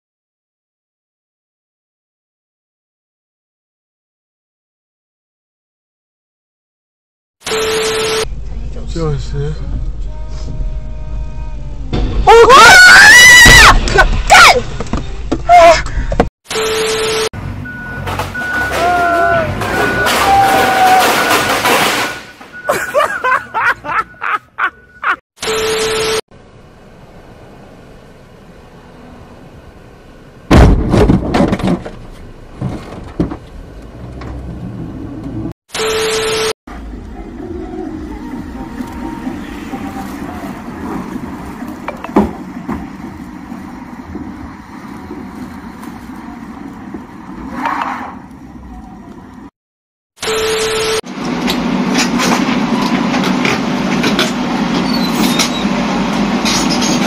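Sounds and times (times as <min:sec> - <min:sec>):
car collision crunch: 0:18.0 - 0:23.1, 0:30.4 - 0:34.4, 0:38.7 - 0:48.2
diesel engine running under load: 0:36.7 - 0:47.4, 0:50.6 - 0:57.0.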